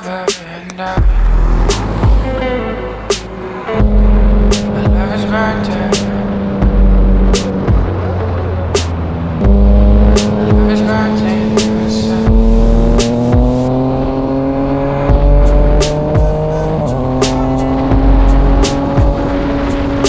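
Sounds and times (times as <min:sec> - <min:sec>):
background music with bass beat: 0:00.0 - 0:13.8, 0:14.7 - 0:20.0.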